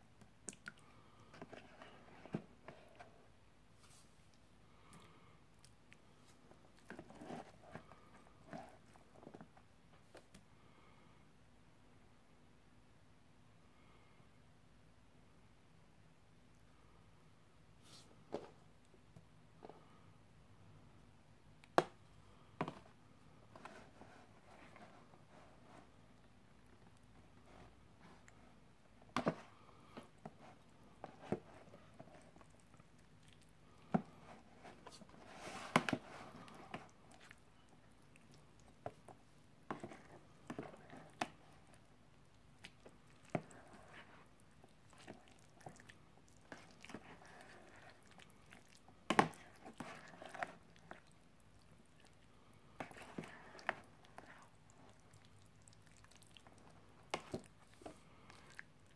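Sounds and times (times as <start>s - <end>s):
wet squelching and scraping of food: 23.5s - 58.9s.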